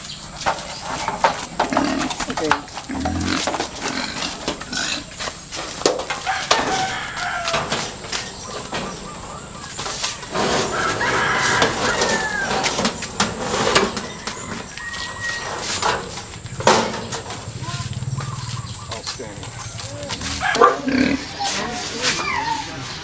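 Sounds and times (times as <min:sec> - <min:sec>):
rooster crowing: 0:06.1 - 0:08.5, 0:10.4 - 0:13.0, 0:13.9 - 0:16.2, 0:18.2 - 0:22.8.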